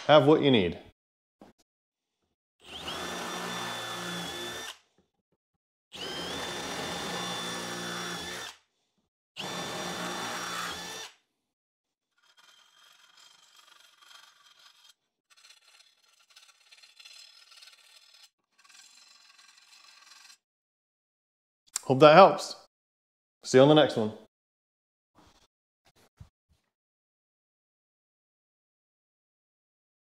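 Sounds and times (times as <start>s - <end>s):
cordless drill drilling metal: 2.6s - 4.8s, 5.9s - 8.6s, 9.4s - 11.2s.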